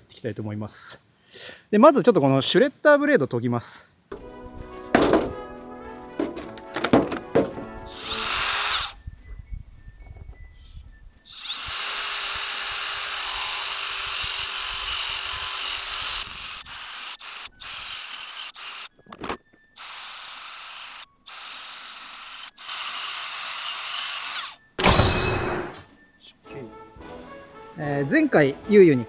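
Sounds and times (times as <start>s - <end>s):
power grinder grinding blade: 7.9s - 8.9s, 11.3s - 18.9s, 19.8s - 24.6s.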